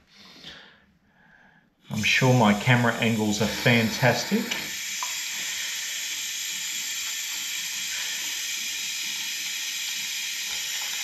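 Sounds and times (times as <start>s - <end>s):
tap water running into glass: 3.1s - 11.0s.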